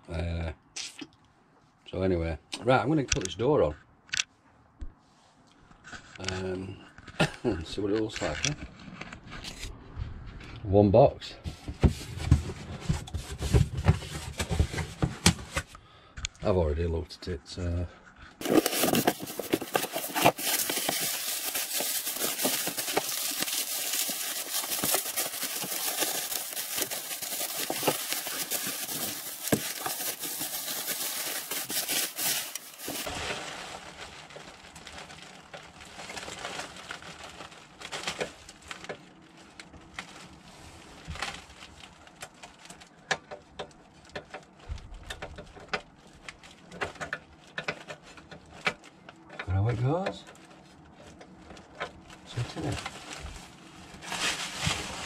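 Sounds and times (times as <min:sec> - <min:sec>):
bubble wrap and cardboard crackling: 0:11.5 - 0:15.7, 0:18.4 - 0:49.0, 0:50.2 - 0:55.0.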